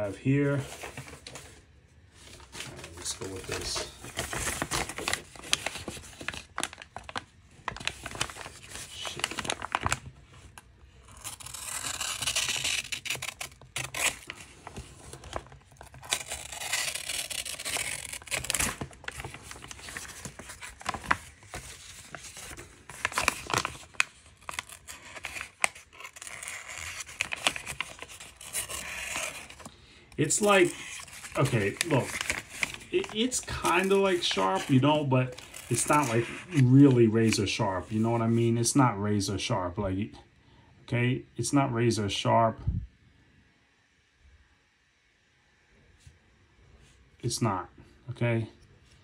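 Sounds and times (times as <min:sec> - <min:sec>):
paper crinkling: 0:02.2 - 0:38.4
knife slicing through paper: 0:30.3 - 0:38.2.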